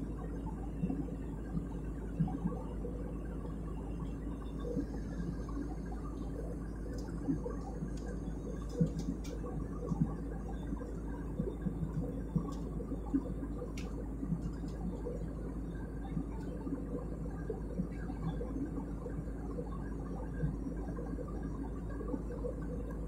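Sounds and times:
airliner cabin engine drone: 0:00.0 - 0:23.0
faint clicks: 0:06.8 - 0:15.3.

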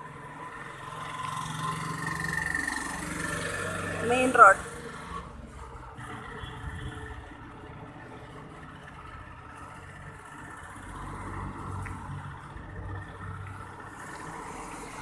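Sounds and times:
vehicle engine hum: 0:00.0 - 0:15.0.

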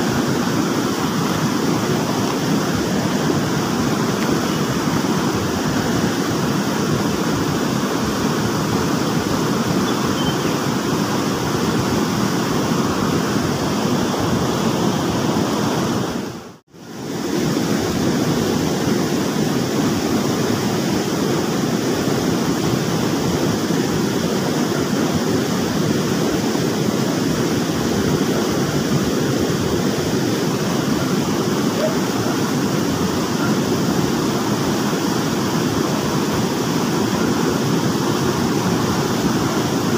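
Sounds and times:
stream water rushing: 0:00.0 - 0:39.9.

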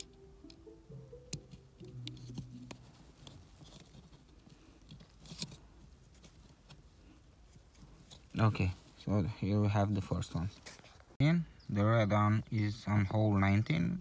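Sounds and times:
faint musical notes: 0:00.0 - 0:04.0
clicks and rustles of wires: 0:01.3 - 0:08.5.

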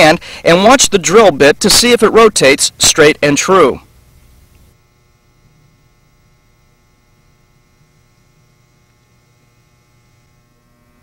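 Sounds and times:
faint electrical mains hum: 0:00.0 - 0:11.0
light hiss: 0:03.8 - 0:11.0.

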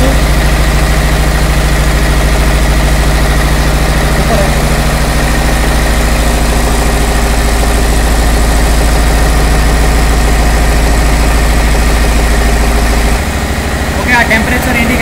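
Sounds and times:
diesel engine running steadily: 0:00.0 - 0:15.0.

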